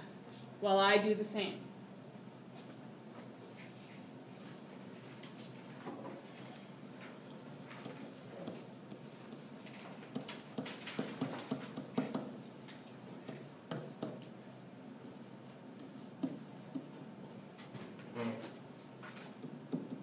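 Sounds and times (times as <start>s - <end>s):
pen tapping and scraping on whiteboard: 7.2s - 14.4s, 15.4s - 17.8s, 19.0s - 20.0s.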